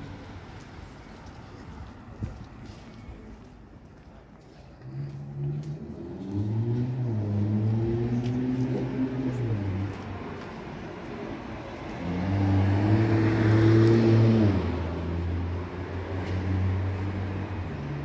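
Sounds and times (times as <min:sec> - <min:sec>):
cars driving past: 0:04.7 - 0:18.0.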